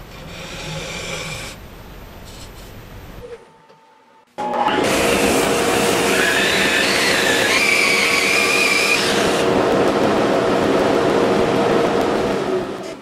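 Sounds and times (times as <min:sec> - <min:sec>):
electric drill sanding wood: 0:04.6 - 0:09.5.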